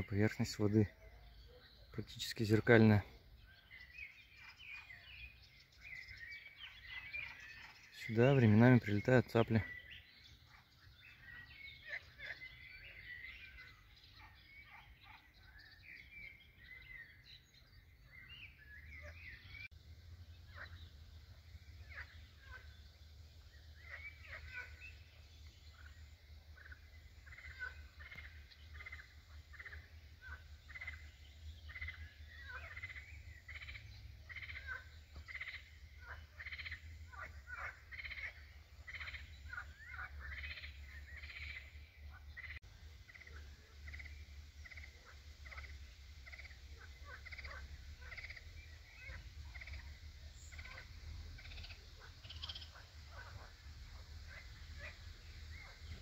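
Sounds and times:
frogs croaking in chorus: 0.0 - 56.0
low steady rumble: 42.7 - 56.0.

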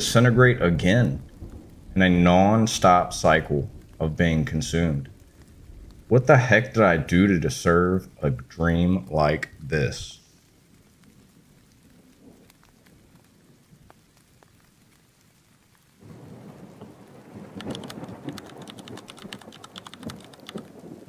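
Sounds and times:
faint steady rain: 0.0 - 21.0
thunder rumbling and crackling: 0.0 - 21.0.

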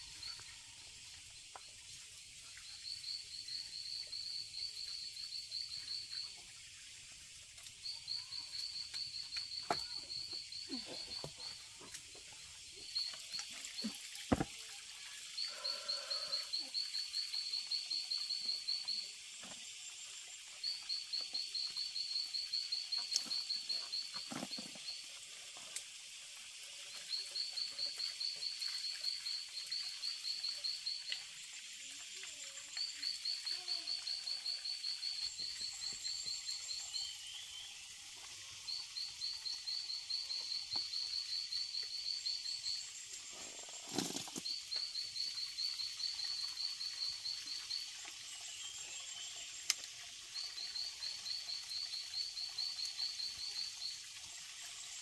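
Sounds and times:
frog calling: 15.3 - 18.8.

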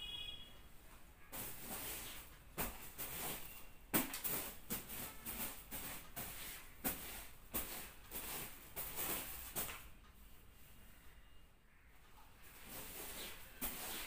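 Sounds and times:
hand broom swishing on sheet: 1.3 - 9.8, 12.6 - 14.0.

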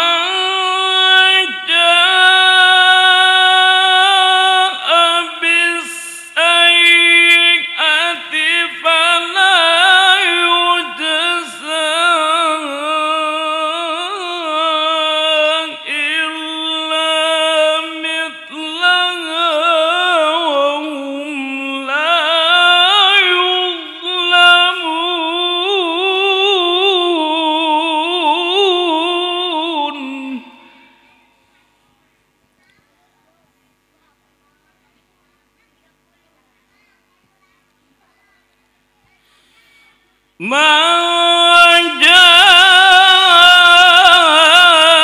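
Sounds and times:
man reciting in melismatic chant: 0.0 - 31.1, 40.4 - 45.0.

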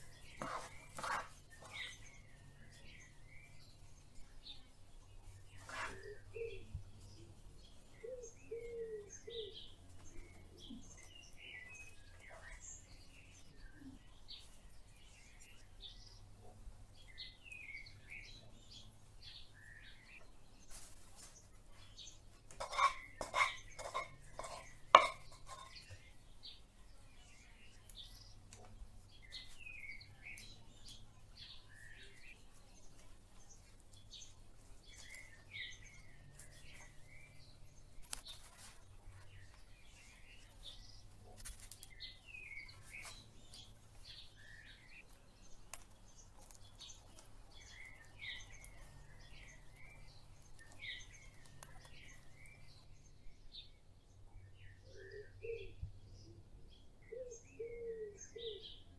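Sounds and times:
birds chirping: 0.0 - 58.9
table knife clinking: 22.6 - 25.8.

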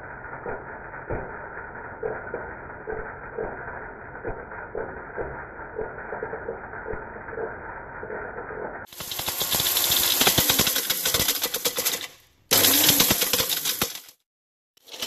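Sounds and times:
blender motor running: 8.9 - 11.5, 12.5 - 14.1.

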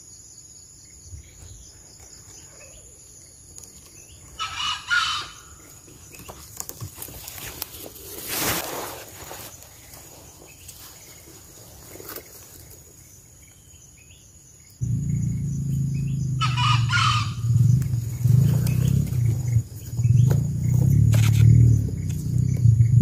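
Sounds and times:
small birds chirping: 0.0 - 23.0
junglefowl crowing: 4.4 - 5.6, 16.0 - 19.0
loud low rumble: 14.8 - 23.0.

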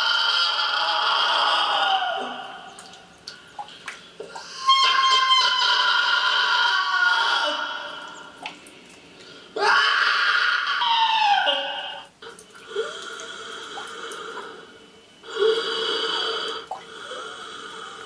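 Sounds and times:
heavy breathing: 12.7 - 18.0.

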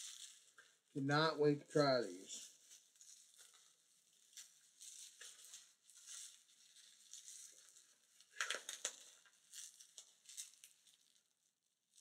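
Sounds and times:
packaging rustling and crinkling: 0.0 - 0.9, 2.2 - 12.0.

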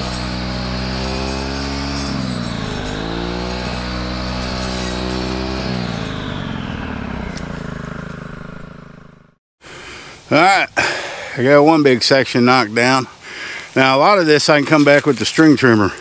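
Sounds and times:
brush cutter engine: 0.0 - 9.4.

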